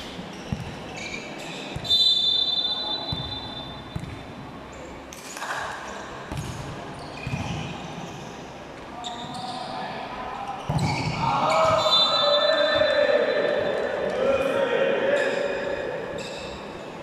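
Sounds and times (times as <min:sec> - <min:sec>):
volleyball bouncing on hard floor: 0:00.5 - 0:00.8, 0:03.9 - 0:04.3
referee's whistle: 0:01.8 - 0:03.9, 0:10.8 - 0:13.5.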